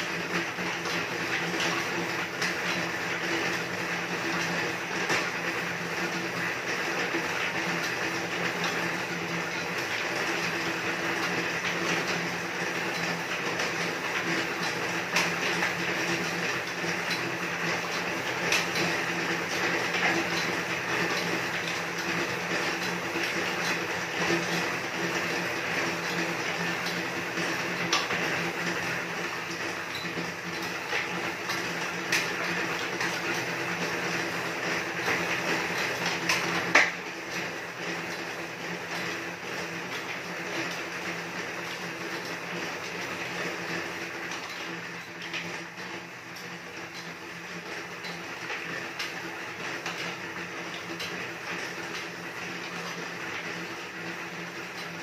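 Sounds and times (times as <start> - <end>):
flywheel whirring: 0.0 - 55.0
sharp clicks from pedals: 7.2 - 41.9.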